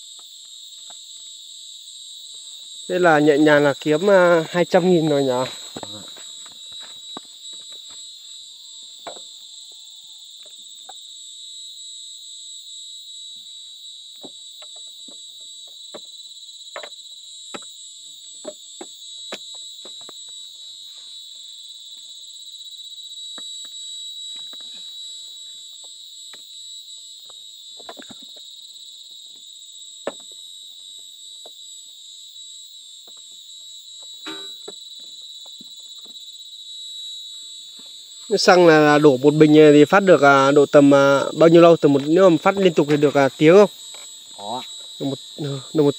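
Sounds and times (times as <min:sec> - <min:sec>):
insects droning: 0:00.0 - 0:45.9.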